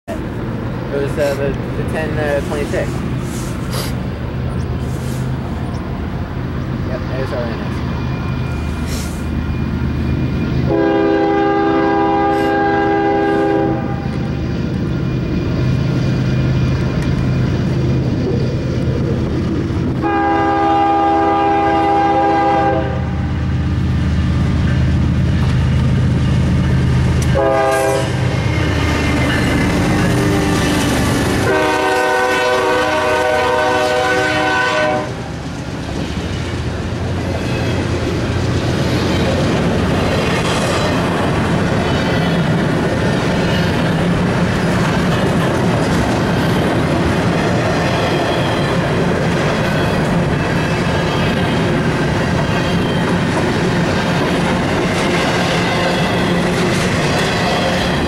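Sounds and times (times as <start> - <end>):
locomotive engines running: 0.1 - 10.8, 13.8 - 20.1, 23.3 - 33.6, 35.1 - 58.0
locomotive air horn: 10.7 - 14.2, 20.0 - 23.3, 27.3 - 28.2, 31.4 - 35.3
train wheels clattering: 24.3 - 33.1, 35.3 - 58.0.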